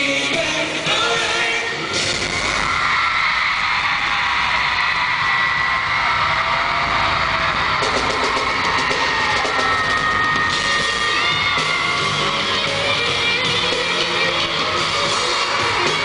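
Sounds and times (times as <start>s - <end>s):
live rock band with drums: 0.0s - 3.1s, 5.1s - 16.0s
crowd screaming and cheering: 0.0s - 16.0s
shrill high screams: 2.4s - 12.8s.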